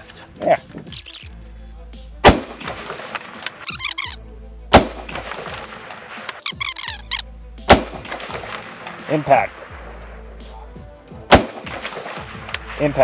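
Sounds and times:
rifle shots: 2.2 - 4.1, 4.7 - 10.2, 11.3 - 13.0.

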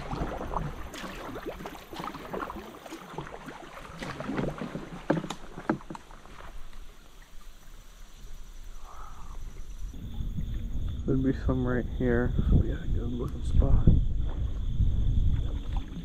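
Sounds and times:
paddle knocking against hull: 0.0 - 6.8
paddle strokes splashing: 0.0 - 8.5, 15.3 - 16.0
soft wash of water: 0.0 - 11.5, 13.5 - 16.0.

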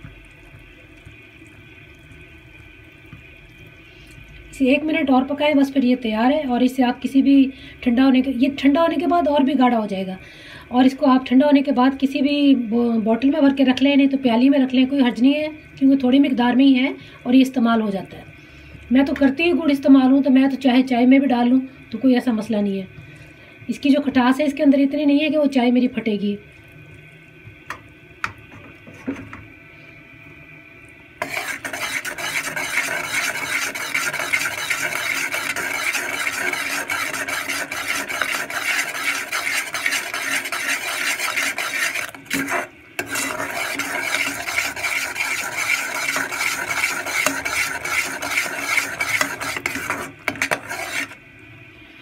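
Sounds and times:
metal spoon scraping saucepan: 31.2 - 51.2
syrup bubbling: 31.2 - 51.2.

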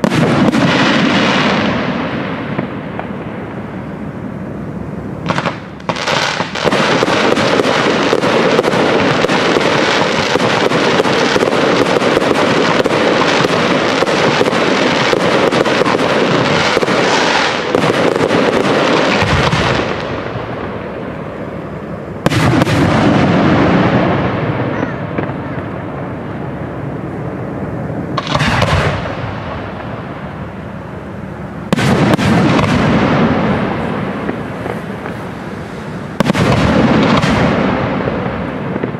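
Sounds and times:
fireworks bangs and crackles: 0.0 - 38.9.

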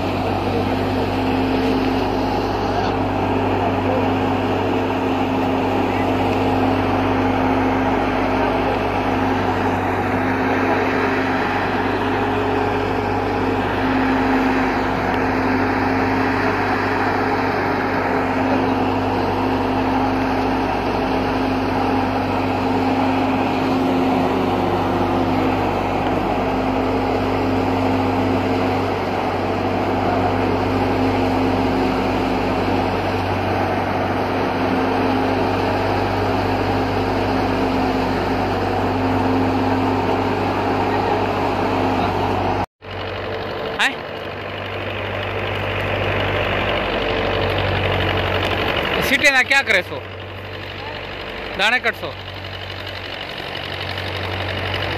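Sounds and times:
thresher machine drone: 0.0 - 54.9.

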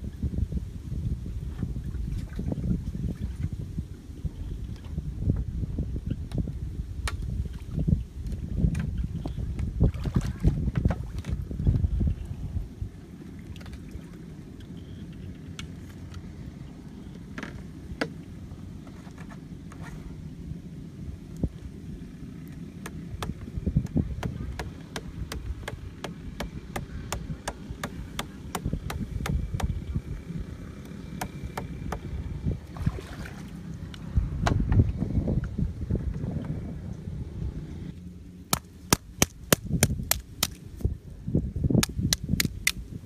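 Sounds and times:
wind rumble on microphone: 0.0 - 43.0
hatchet knocking wooden stake: 22.8 - 29.8.

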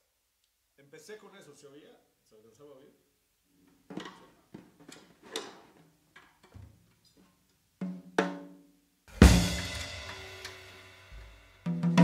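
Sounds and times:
kick drum and crash cymbal hit: 9.1 - 11.4
drum kit strokes: 9.1 - 12.0.

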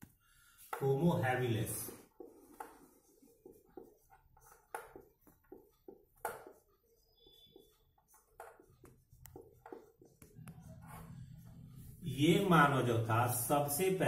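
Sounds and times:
marker writing on whiteboard: 0.0 - 14.0
marker squeak: 1.7 - 11.9.

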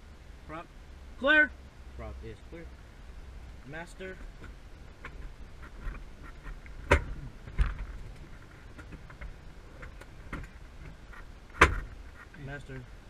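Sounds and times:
sharp clicks and knocks: 4.2 - 12.4.

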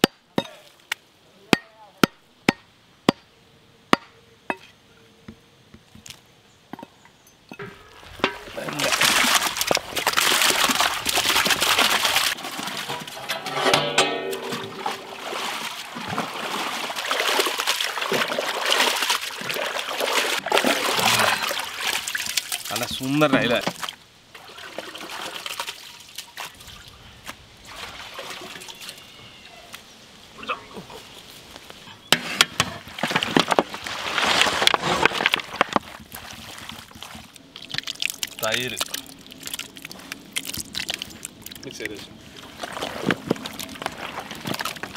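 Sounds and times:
meat clattering into metal vessel: 7.6 - 15.7
hands splashing water in metal pot: 8.2 - 22.8, 36.2 - 41.6.

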